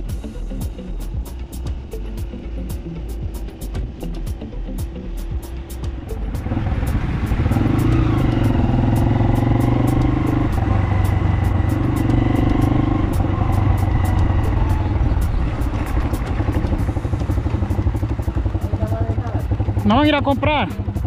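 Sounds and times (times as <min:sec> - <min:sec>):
small motorcycle engine: 0:05.3 - 0:21.0.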